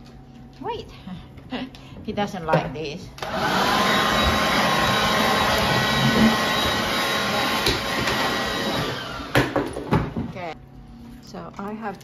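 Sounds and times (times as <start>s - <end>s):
blow dryer running: 3.1s - 10.3s.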